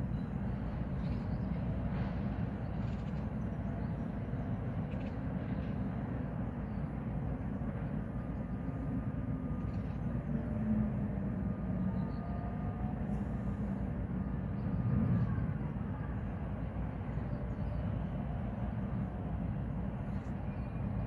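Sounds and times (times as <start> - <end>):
distant heavy machinery rumble: 0.0 - 21.0
faint rising whines: 6.1 - 21.0.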